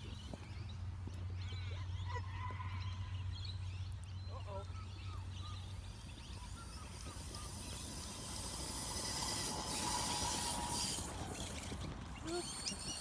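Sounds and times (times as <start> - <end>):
toy car motor whine: 6.7 - 13.0.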